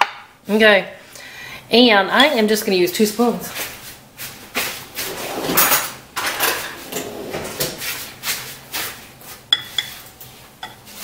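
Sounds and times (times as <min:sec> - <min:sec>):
spoons and dishes clattering: 0:09.5 - 0:11.0.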